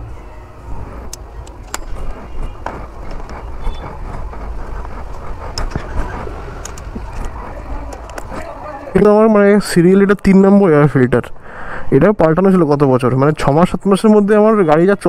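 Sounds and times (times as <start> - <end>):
low rumble: 0.0 - 9.3.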